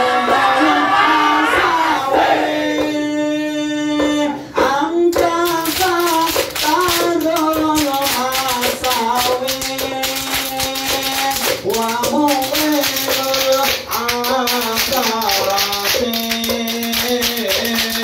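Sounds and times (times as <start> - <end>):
male group singing: 0.0 - 18.0
rhythmic hand claps: 0.0 - 18.0.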